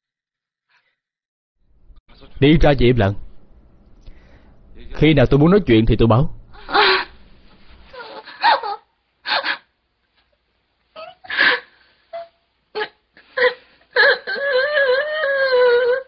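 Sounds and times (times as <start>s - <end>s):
woman sobbing and gasping: 6.5s - 7.2s, 7.9s - 9.8s, 10.9s - 16.0s
woman wailing: 6.6s - 7.2s, 7.9s - 9.6s, 11.0s - 16.0s.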